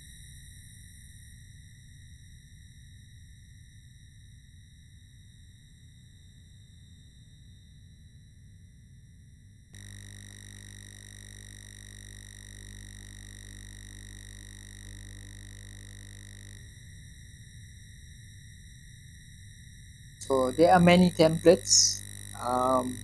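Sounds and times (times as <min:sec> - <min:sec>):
deep electrical buzz: 0:09.8 - 0:16.8, 0:20.2 - 0:23.0
electrical whine and hum: 0:09.8 - 0:23.0.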